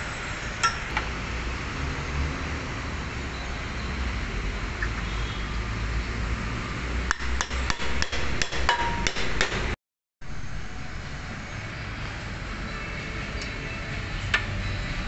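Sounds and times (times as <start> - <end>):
workshop background noise: 7.0 - 9.8.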